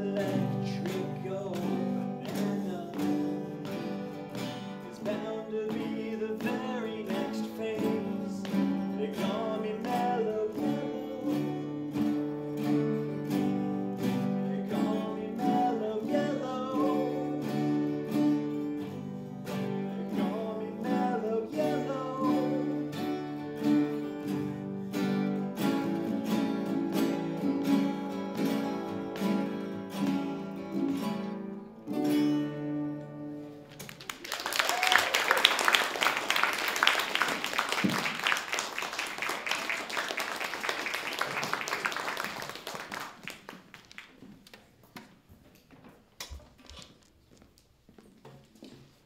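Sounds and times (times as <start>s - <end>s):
acoustic guitars strumming: 0.0s - 34.0s
audience applause: 33.8s - 44.2s.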